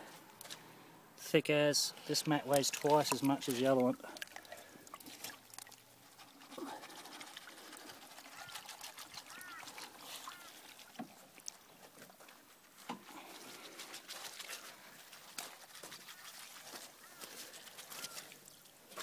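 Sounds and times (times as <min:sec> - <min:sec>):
bird calls: 0:08.2 - 0:10.7, 0:16.1 - 0:18.4.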